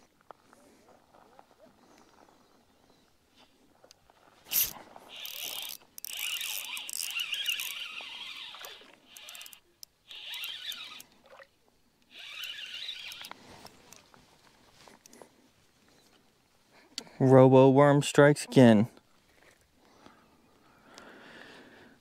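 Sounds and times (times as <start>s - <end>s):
fishing reel whirring: 4.5s - 11.4s, 12.1s - 14.0s.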